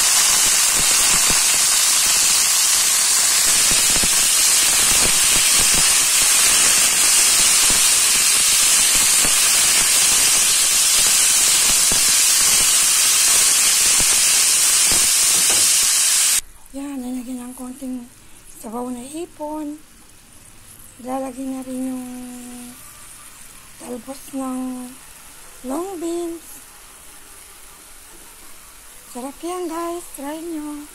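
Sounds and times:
beans sizzling in hot oil: 0.0 - 16.4, 20.3 - 26.8.

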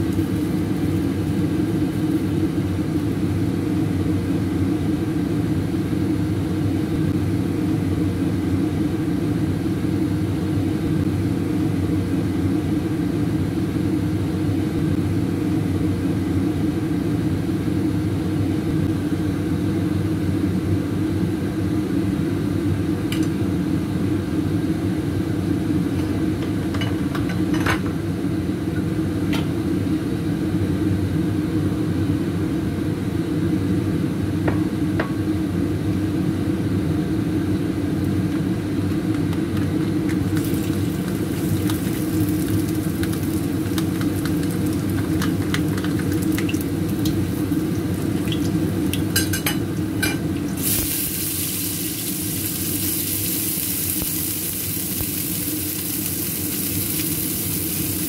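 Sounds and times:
kitchen appliance humming: 0.0 - 5.1, 37.4 - 58.0.

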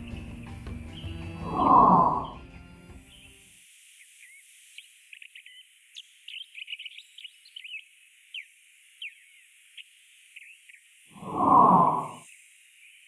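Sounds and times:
small birds chirping: 0.0 - 13.0
faint steady hiss: 2.6 - 13.0.

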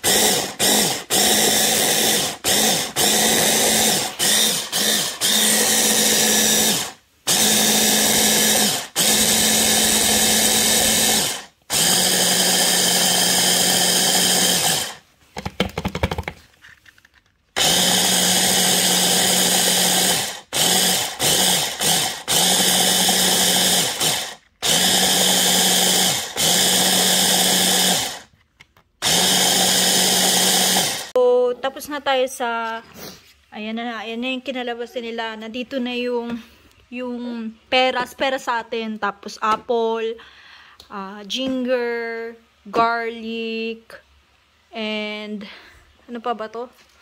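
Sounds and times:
electric chopper motor whining: 0.0 - 15.0, 17.6 - 28.2.

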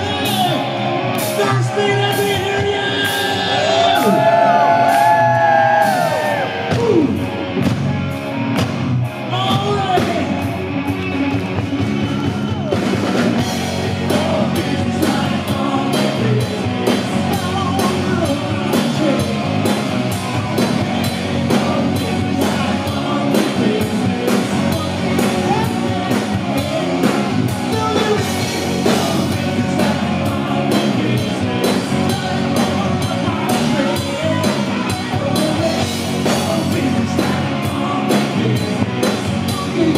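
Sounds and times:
hard rock band playing live: 0.0 - 39.9
drum kit steady beat: 1.2 - 39.9
lead singer singing: 13.4 - 39.9.

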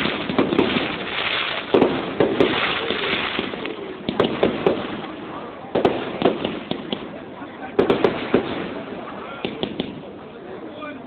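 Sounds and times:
firework shells bursting: 0.0 - 7.2
crackling hiss of fireworks: 0.0 - 11.0.

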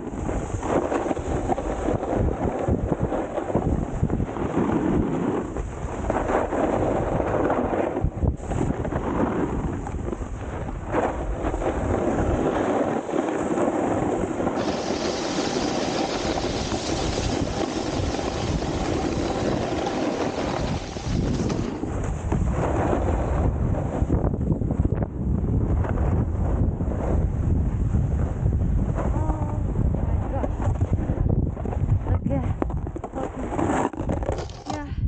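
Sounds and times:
snowboard scraping icy snow: 0.0 - 24.9, 33.2 - 34.8
wind buffeting microphone: 0.0 - 35.0.

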